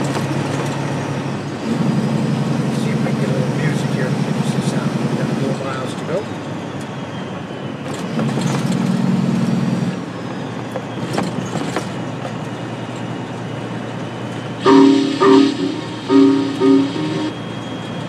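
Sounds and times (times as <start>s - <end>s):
truck engine and road noise: 0.0s - 18.0s
music with loud chords: 14.6s - 17.3s.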